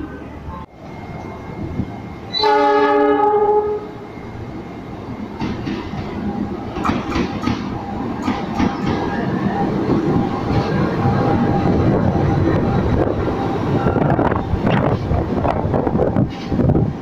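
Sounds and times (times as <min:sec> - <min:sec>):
locomotive engine and wheel noise: 0:00.0 - 0:17.0
locomotive horn: 0:02.3 - 0:04.0
wheels clacking over rail joints: 0:05.3 - 0:13.9.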